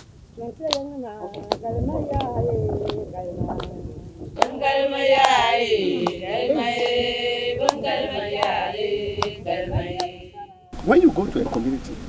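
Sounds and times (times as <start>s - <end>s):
group chanting in chorus: 4.4s - 10.8s.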